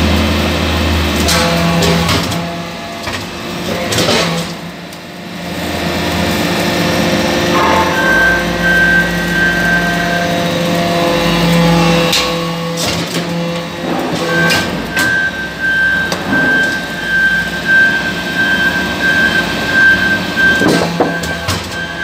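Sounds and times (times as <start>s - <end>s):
high steady whine: 7.4s - 10.4s.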